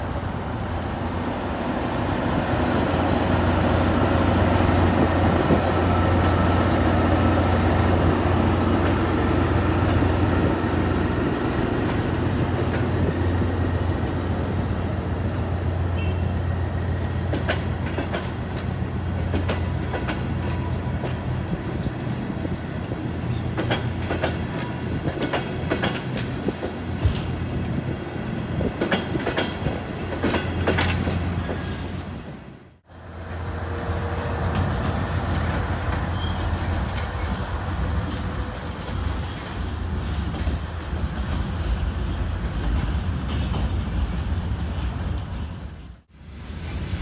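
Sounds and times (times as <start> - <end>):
wheels clicking over rail joints: 17.0 - 27.4, 28.1 - 32.1.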